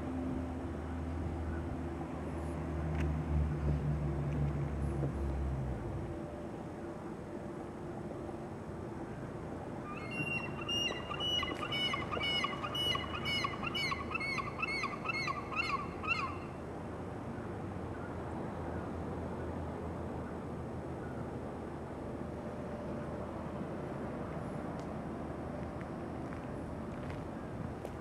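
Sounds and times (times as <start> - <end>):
birds calling rapidly: 9.9 - 16.4.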